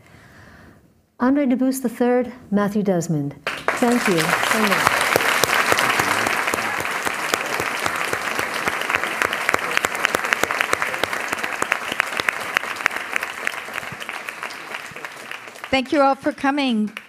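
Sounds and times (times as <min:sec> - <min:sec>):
audience applause: 0:03.4 - 0:17.0.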